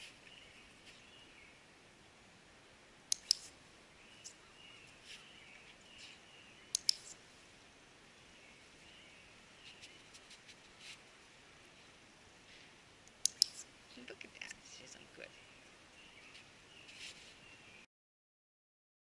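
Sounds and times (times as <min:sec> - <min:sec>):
faint birdsong chirps: 0:00.0 - 0:02.3, 0:03.1 - 0:17.9
training clicker clicking: 0:03.1 - 0:03.5, 0:06.7 - 0:07.1, 0:13.1 - 0:13.6.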